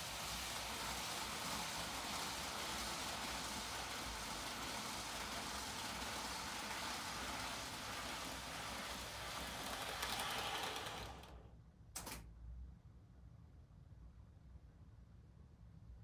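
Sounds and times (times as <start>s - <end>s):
model trains rolling on track: 0.0s - 11.5s.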